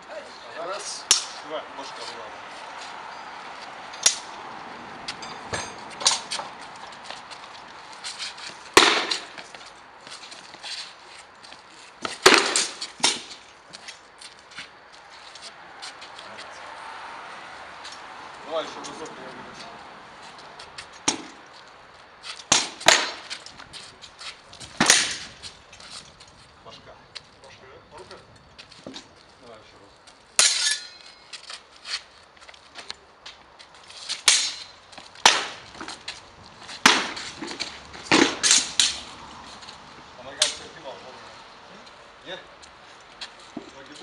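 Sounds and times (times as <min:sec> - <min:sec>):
swords striking shields: 0:08.8 - 0:09.4, 0:12.0 - 0:13.4, 0:21.1 - 0:21.4, 0:22.5 - 0:23.4, 0:24.8 - 0:25.3, 0:30.4 - 0:31.2, 0:34.2 - 0:35.9, 0:36.8 - 0:39.0.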